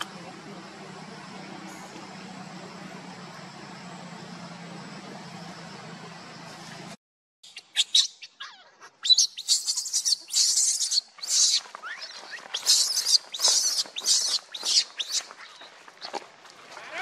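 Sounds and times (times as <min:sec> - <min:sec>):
baby monkey squealing cries: 0:07.8 - 0:15.6.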